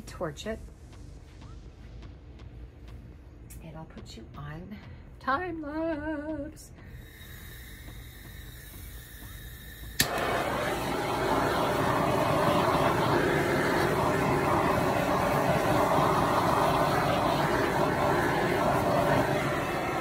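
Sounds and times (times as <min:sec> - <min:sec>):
torch flame hissing: 0:07.0 - 0:20.0
torch igniting click: 0:09.9 - 0:20.0.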